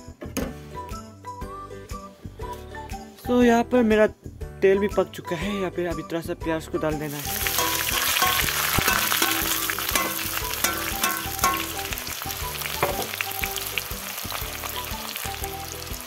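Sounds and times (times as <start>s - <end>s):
onions sizzling in oil: 7.1s - 16.0s.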